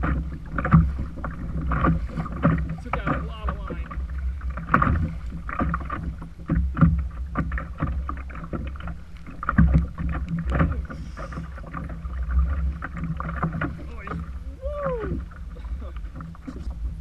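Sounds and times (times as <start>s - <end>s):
water slapping kayak hull: 0.0s - 17.0s
wind buffeting microphone: 9.7s - 17.0s.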